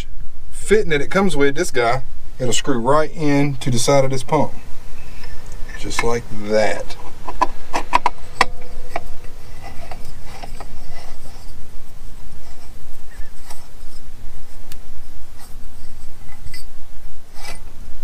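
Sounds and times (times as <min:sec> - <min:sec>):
steady low rumble: 0:00.0 - 0:18.0
metal clicking and scraping: 0:05.2 - 0:17.8.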